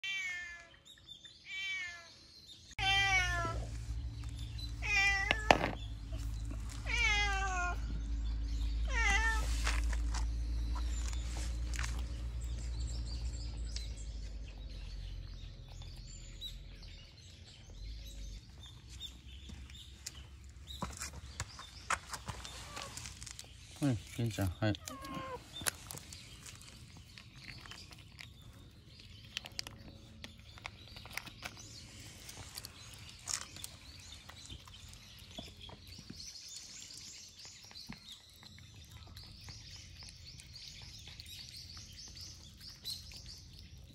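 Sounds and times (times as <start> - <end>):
cat meowing: 0.0 - 0.8, 1.5 - 2.1, 2.8 - 3.7, 4.4 - 8.0, 8.8 - 9.6, 24.8 - 25.5
steady low hum: 2.8 - 16.8.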